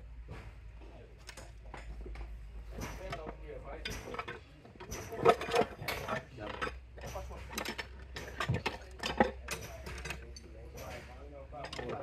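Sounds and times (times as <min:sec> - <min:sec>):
wrench clicking and clanking on metal: 0:02.8 - 0:12.0.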